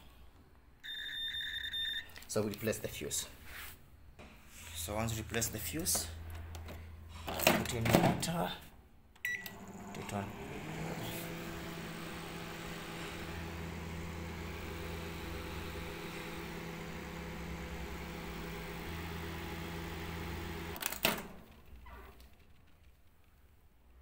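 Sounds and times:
microwave oven humming: 0:09.2 - 0:20.8.

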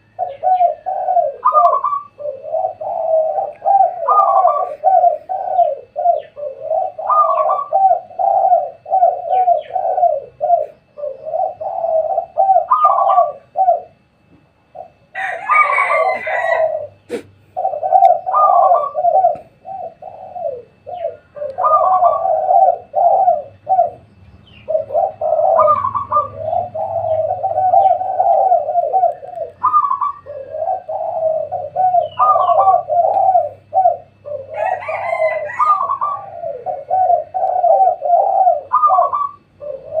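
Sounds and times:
doves cooing: 0:00.0 - 0:40.0
harsh high bird call: 0:24.6 - 0:36.8.

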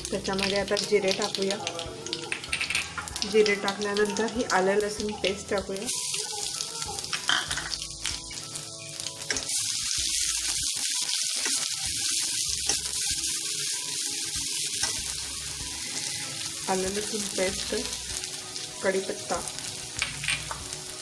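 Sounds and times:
paste sizzling in hot oil: 0:02.8 - 0:21.0.

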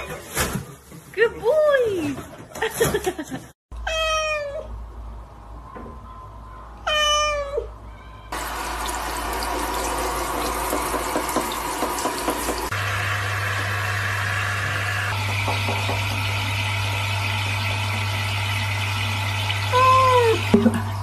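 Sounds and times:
cat meowing: 0:03.8 - 0:04.8, 0:06.8 - 0:08.3, 0:19.7 - 0:20.4.

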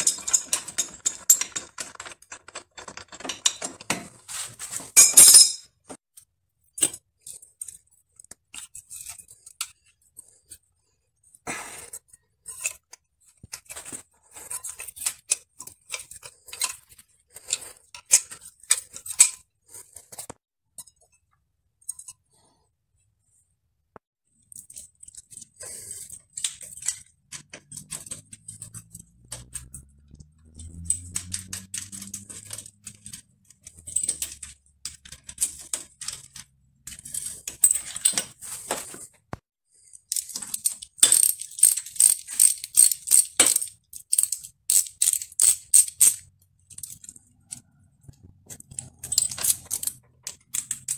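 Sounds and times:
metal clicks of hand tools: 0:24.5 - 0:38.3, 0:40.1 - 0:50.9.

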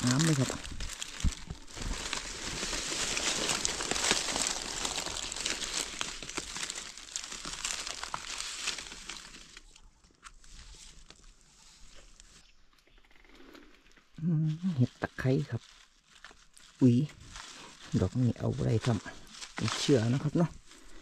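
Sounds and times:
hands digging in ground: 0:00.0 - 0:09.6
dry leaves rustling and crackling: 0:00.0 - 0:12.4, 0:14.2 - 0:21.0.

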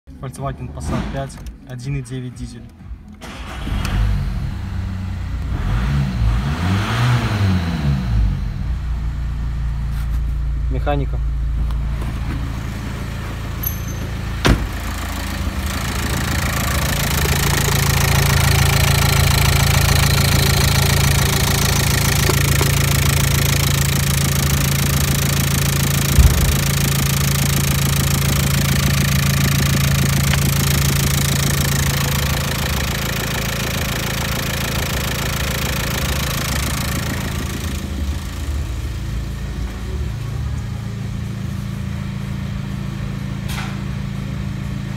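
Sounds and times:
diesel engine idling: 0:10.4 - 0:43.4
sharp knock: 0:26.1 - 0:26.9.

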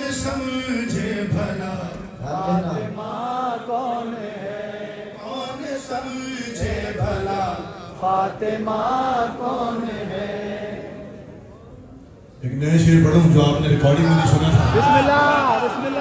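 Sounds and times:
man singing into a microphone: 0:00.0 - 0:10.2.

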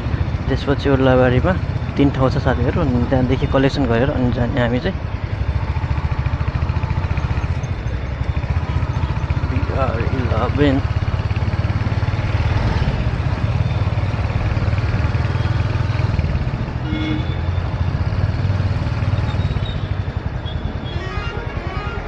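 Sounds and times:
motorcycle engine running: 0:00.0 - 0:22.0
short tone: 0:16.8 - 0:17.6.

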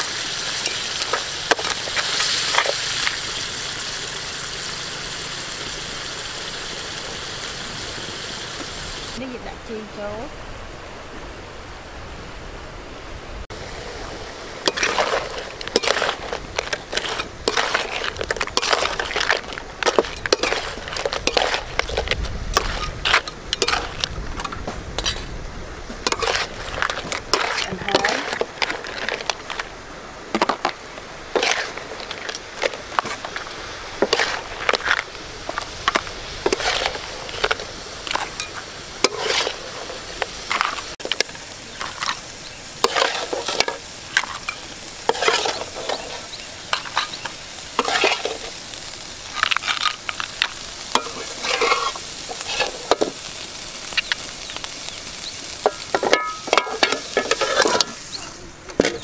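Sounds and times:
frying sizzle: 0:00.0 - 0:10.3, 0:13.4 - 0:59.0
metal spatula scraping a wok: 0:14.7 - 0:25.3, 0:26.0 - 0:29.7, 0:31.3 - 0:35.0, 0:35.6 - 0:48.6, 0:49.2 - 0:53.2, 0:55.6 - 0:58.3.

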